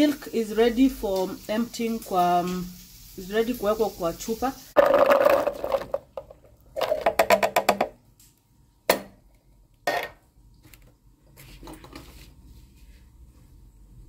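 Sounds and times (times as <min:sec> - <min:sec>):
wooden knocks: 0:06.8 - 0:08.0.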